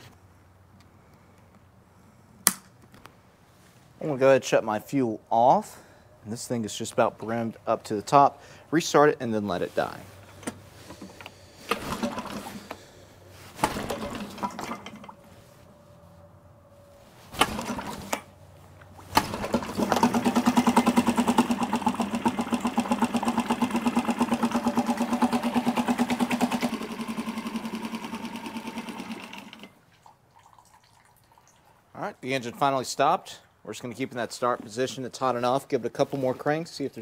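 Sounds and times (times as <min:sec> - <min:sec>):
starter cord pulled: 0:10.3 - 0:12.8, 0:13.6 - 0:15.1, 0:17.4 - 0:18.3, 0:19.1 - 0:29.8
outboard motor running: 0:18.9 - 0:29.8.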